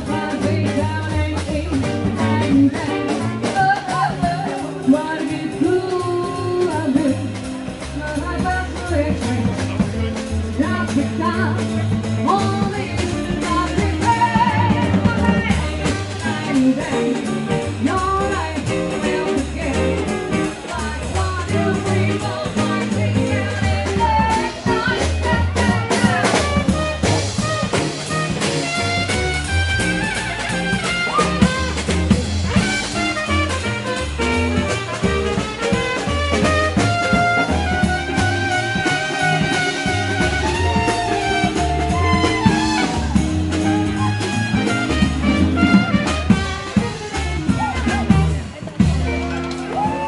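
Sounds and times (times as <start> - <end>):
double bass pulsing: 0.0 - 50.0
live band playing dance music: 0.0 - 50.0
person singing: 10.5 - 26.8.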